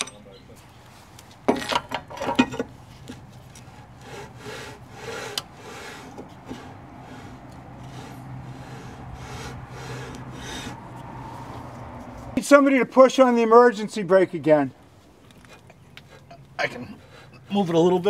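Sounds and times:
brake drum scraping against shoes: 0:00.8 - 0:12.4.

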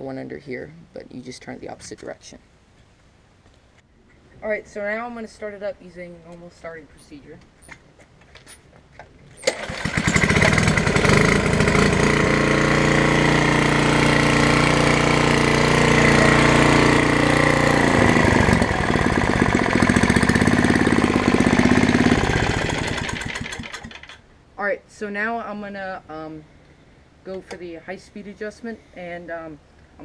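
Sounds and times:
recoil cord pull-start: 0:09.4 - 0:24.2
small engine running steadily: 0:09.5 - 0:24.2.

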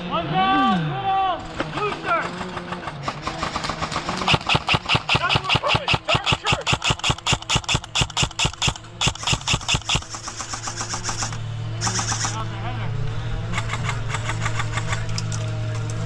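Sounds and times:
airsoft gun firing rapid shots: 0:01.6 - 0:12.4, 0:13.5 - 0:15.1.

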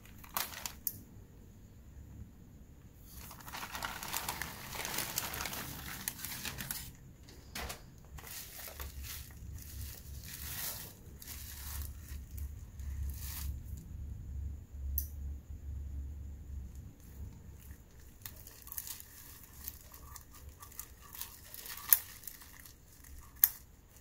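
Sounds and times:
plastic mailer and bubble wrap crinkling: 0:00.0 - 0:00.9, 0:03.0 - 0:13.7, 0:17.6 - 0:24.0.

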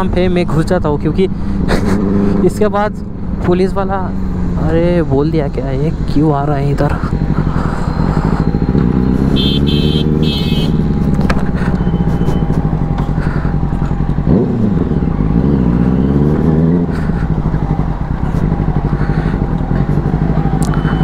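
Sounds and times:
motorcycle engine running: 0:06.6 - 0:21.0
short high-pitched beeps: 0:20.7 - 0:21.0.

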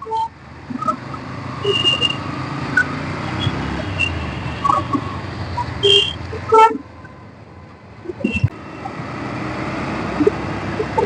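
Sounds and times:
motorcycle engine humming: 0:00.0 - 0:11.0
wind and road noise: 0:00.0 - 0:11.0
car horn beeps: 0:01.6 - 0:07.2, 0:08.2 - 0:08.6.

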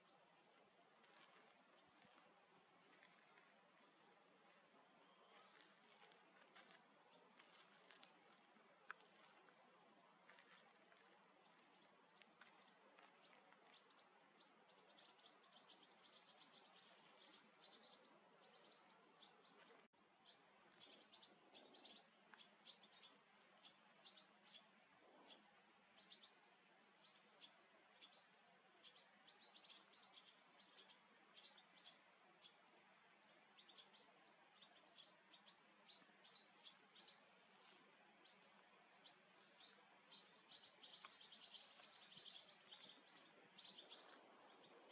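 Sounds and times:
swallows twittering: 0:09.3 - 0:26.4, 0:27.0 - 0:37.5, 0:38.2 - 0:44.9.

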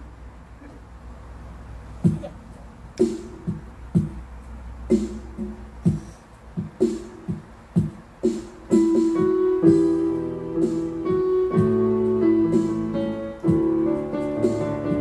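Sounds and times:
keyboard playing piano chords: 0:06.6 - 0:15.0.

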